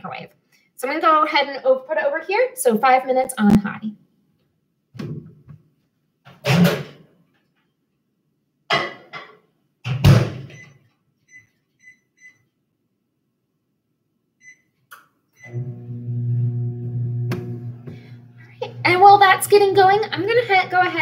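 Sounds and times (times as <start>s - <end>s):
keypad beeps: 10.5s - 12.4s
microwave oven humming: 15.4s - 21.0s.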